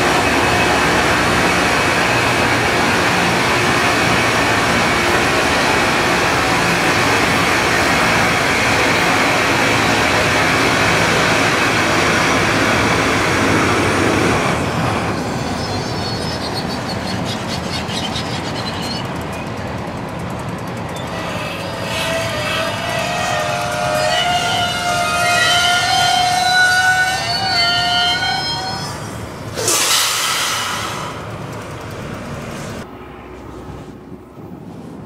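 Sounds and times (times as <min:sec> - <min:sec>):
train rumbling by: 0:00.0 - 0:35.0
harsh grinding hiss of rail grinder: 0:29.6 - 0:31.2.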